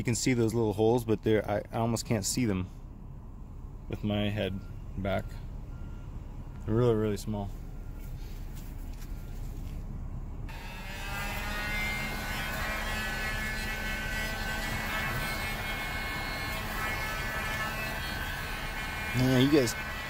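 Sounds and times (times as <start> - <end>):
heat gun fan whining: 10.5 - 20.0.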